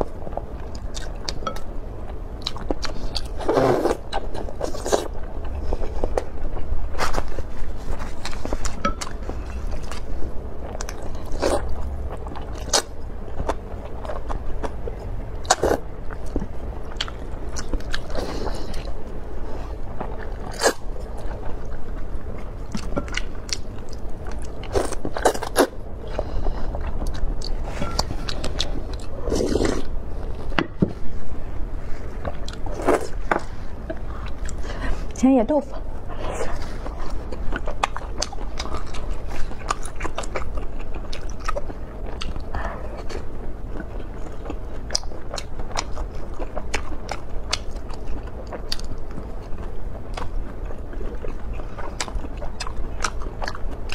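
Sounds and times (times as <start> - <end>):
steady low hum: 0.0 - 53.9
slurping noodles: 29.2 - 29.9
chewing and biting: 36.4 - 53.9.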